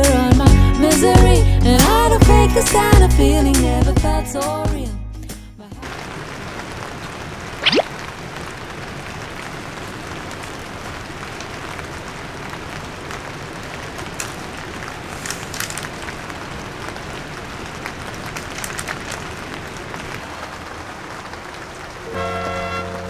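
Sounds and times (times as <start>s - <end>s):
rain hissing on a tent: 5.8s - 23.0s
raindrops ticking: 5.8s - 23.0s.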